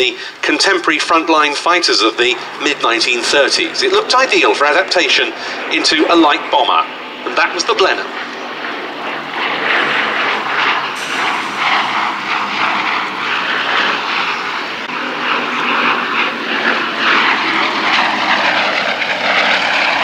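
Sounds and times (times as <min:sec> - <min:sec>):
propeller plane engines flypast: 0:00.0 - 0:20.0.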